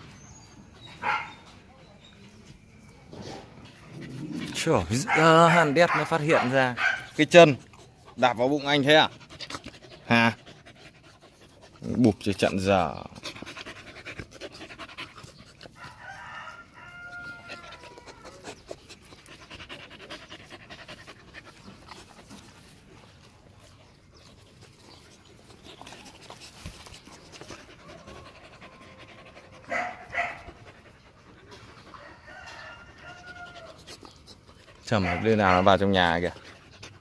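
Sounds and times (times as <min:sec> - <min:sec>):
puppies panting and scuffling: 0:00.0 - 0:37.0
dog barks: 0:01.0 - 0:01.4, 0:05.0 - 0:07.2, 0:29.7 - 0:30.5, 0:34.9 - 0:35.8
puppy whining: 0:16.8 - 0:19.2, 0:27.3 - 0:30.4.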